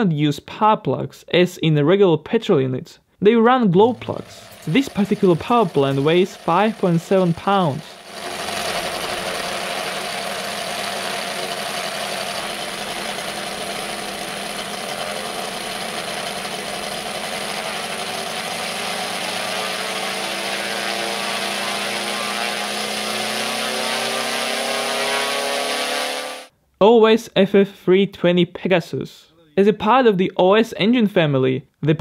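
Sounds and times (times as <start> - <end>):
model aircraft engine running: 3.8 - 26.5.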